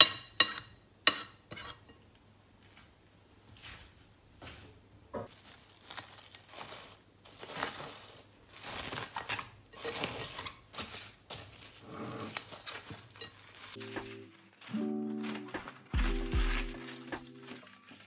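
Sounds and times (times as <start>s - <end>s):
cling film crinkling: 5.3s - 18.0s.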